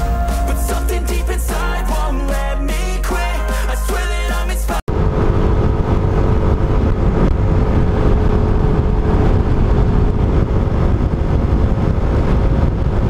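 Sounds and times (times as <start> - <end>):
wind rumble on microphone: 4.9 - 13.0.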